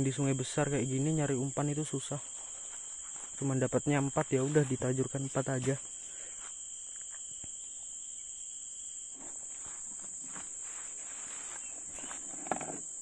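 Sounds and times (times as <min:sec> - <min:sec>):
insects droning: 0:00.0 - 0:13.0
faint rustling and handling: 0:02.1 - 0:03.6, 0:09.2 - 0:12.9.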